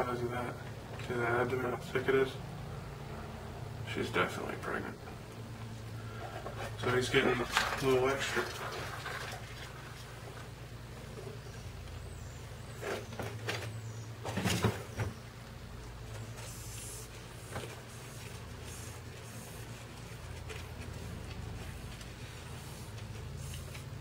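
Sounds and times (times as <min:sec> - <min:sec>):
cardboard egg cartons rustling: 0:12.6 - 0:24.0.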